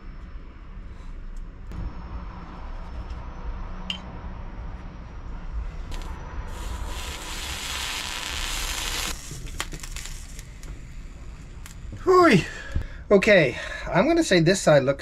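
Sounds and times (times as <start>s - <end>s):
soldering iron sizzling: 5.9s - 12.0s.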